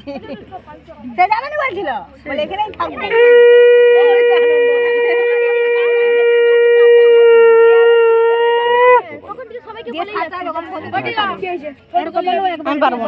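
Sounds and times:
conch shell blown: 3.1s - 9.0s.

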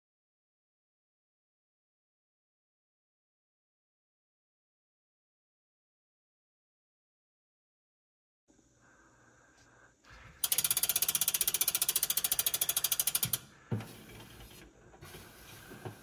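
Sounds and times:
freehub ratcheting clicks: 10.4s - 13.5s.

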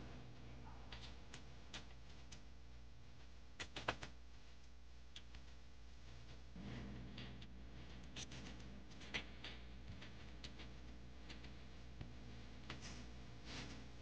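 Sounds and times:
low steady hum: 0.0s - 14.0s
faint clicks and taps: 3.2s - 5.6s, 7.2s - 13.8s.

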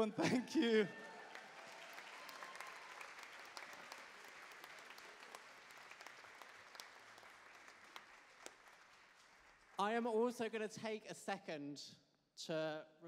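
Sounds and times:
audience applauding: 0.0s - 10.0s.

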